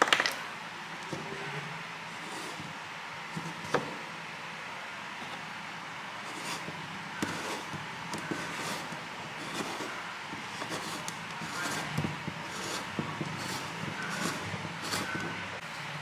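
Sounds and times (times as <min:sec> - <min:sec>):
plastic scraping on plastic: 0:02.2 - 0:03.9, 0:06.3 - 0:15.6
marker scratching: 0:06.3 - 0:15.5.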